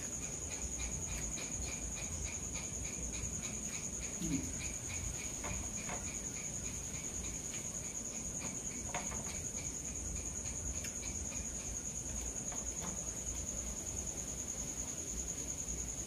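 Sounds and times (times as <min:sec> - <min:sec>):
crickets trilling: 0:00.0 - 0:16.0
faint clicks: 0:10.8 - 0:11.4.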